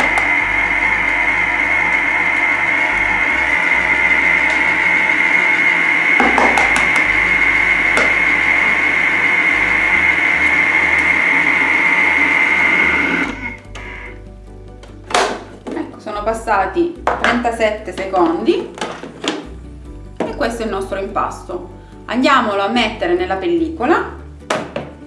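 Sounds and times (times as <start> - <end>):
food processor whining: 0.0 - 14.3
egg cracking knocks: 6.2 - 7.2.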